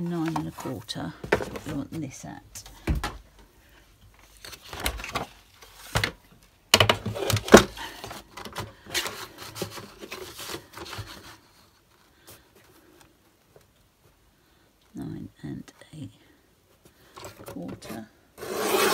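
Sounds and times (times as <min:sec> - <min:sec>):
paper rustling and scraping: 0:00.0 - 0:02.0, 0:07.0 - 0:12.9, 0:17.3 - 0:18.9.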